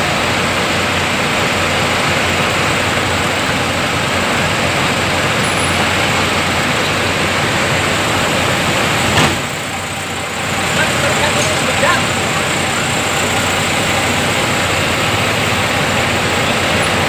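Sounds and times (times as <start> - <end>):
fire truck engines and pumps: 0.0 - 17.0.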